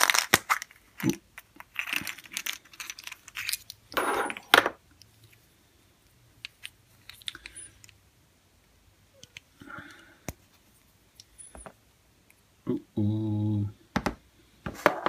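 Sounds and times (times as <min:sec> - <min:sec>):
plastic toy pieces rattling: 0:00.0 - 0:04.5.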